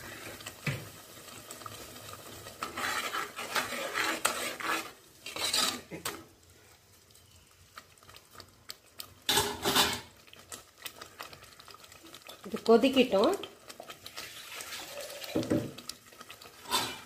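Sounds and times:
spoon scraping metal pot: 2.5s - 6.2s, 9.3s - 10.1s, 16.6s - 17.0s.

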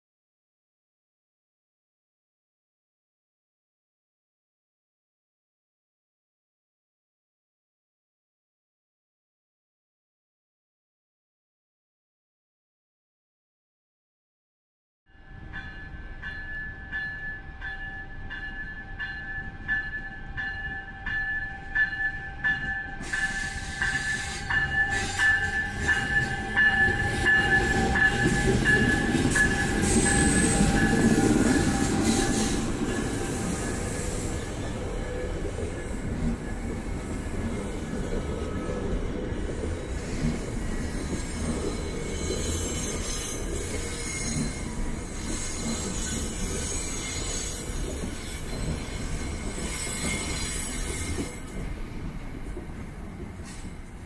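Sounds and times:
commuter train passing: 15.1s - 54.0s
railroad crossing bell ringing: 15.1s - 54.0s
train coaches rumbling: 15.5s - 54.0s
high wheel squeal: 23.0s - 35.4s, 39.8s - 51.6s.

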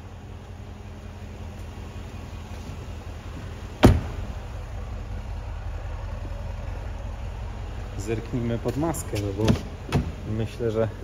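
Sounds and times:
steady low rumble: 0.0s - 11.0s
car door shutting: 3.8s - 4.4s, 9.1s - 10.2s.

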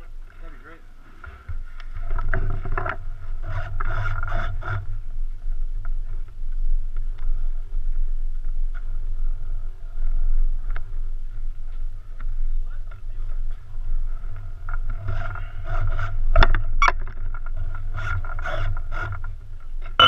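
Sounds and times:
low rumble: 0.0s - 20.0s
knocks and scrapes: 1.1s - 6.4s, 13.0s - 20.0s
wind on microphone: 1.4s - 20.0s.

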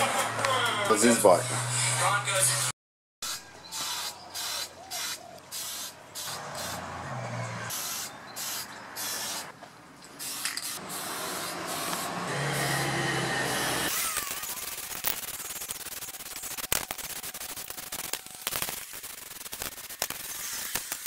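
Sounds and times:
spray paint can hissing: 3.2s - 6.8s, 7.7s - 9.5s, 10.2s - 12.9s, 13.9s - 21.0s.

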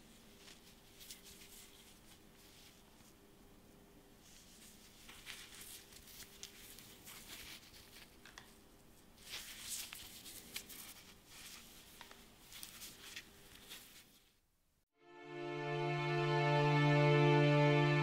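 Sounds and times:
plastic sleeve crinkling: 4.2s - 8.6s, 9.2s - 14.4s.

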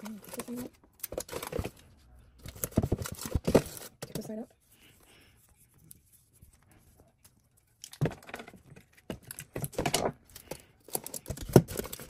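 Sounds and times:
aluminium foil crinkling: 0.0s - 4.4s, 7.8s - 12.0s.

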